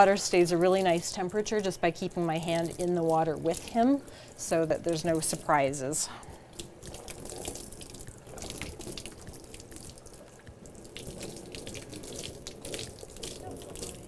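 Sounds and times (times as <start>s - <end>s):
water spraying on dog's coat: 0.0s - 5.9s, 10.9s - 14.0s
water dripping into sink: 0.0s - 14.0s.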